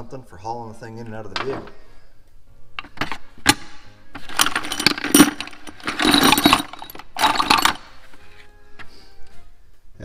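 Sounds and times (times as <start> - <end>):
metal parts clattering in plastic bucket: 4.2 - 8.0.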